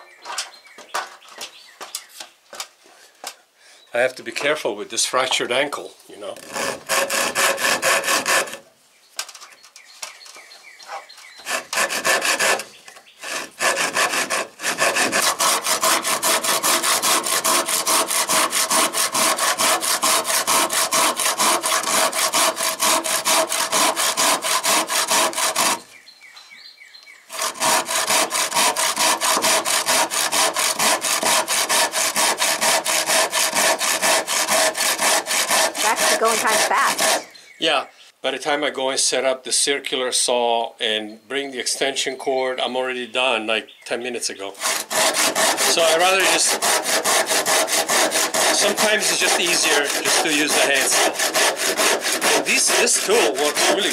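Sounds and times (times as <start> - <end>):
hand saw cutting wood: 6.3 - 8.7, 11.0 - 25.9, 27.3 - 37.3, 44.5 - 53.9.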